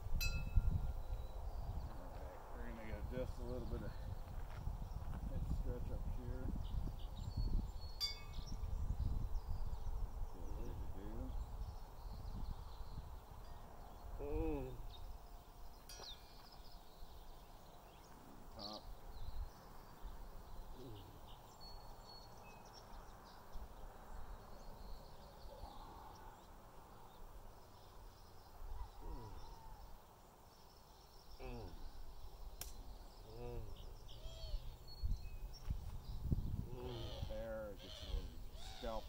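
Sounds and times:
wind rumble on microphone: 0.0 - 15.8, 31.7 - 39.0
distant bird calls: 0.0 - 39.0.

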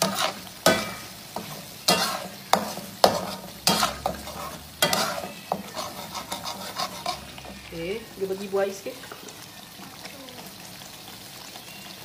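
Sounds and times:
spatula scraping a pan: 0.0 - 8.5
oil sizzling: 0.0 - 12.0.

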